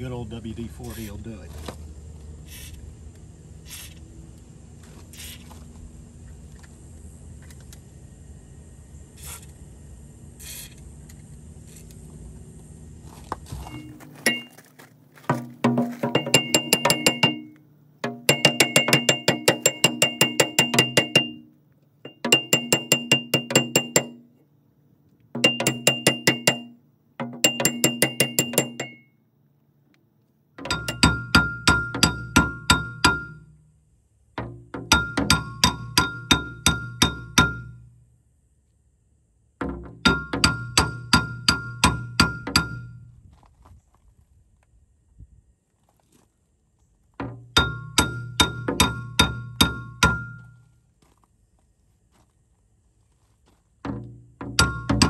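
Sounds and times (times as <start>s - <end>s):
impact wrench hammering: 13.7s - 14.6s, 15.2s - 21.5s, 22.1s - 24.3s, 25.4s - 29.1s, 30.6s - 33.6s, 34.4s - 37.9s, 39.6s - 43.0s, 47.2s - 50.5s, 53.9s - 55.0s
metal ringing: 13.7s - 14.7s, 15.3s - 24.4s, 25.4s - 29.2s, 30.6s - 33.8s, 34.4s - 37.9s, 39.6s - 43.1s, 47.3s - 50.6s, 53.9s - 55.0s.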